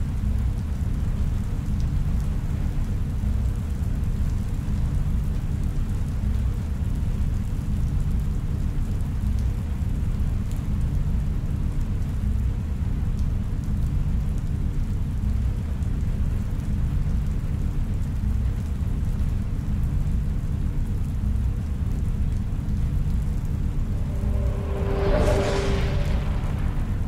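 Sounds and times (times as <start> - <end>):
deep rumbling ambient drone: 19.5 - 27.0.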